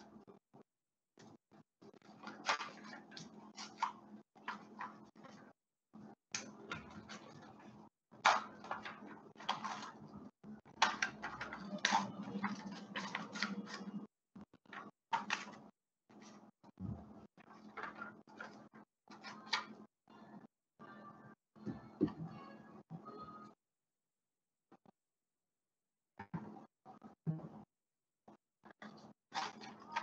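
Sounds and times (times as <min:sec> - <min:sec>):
paper rustling and crinkling: 0:02.0 - 0:05.5, 0:06.7 - 0:16.5, 0:28.8 - 0:30.0.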